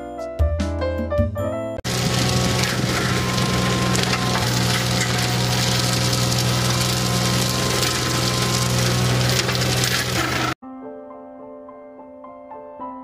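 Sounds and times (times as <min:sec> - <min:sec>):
mower blades chopping brush: 0:01.8 - 0:10.6
machine engine drone: 0:01.9 - 0:10.6.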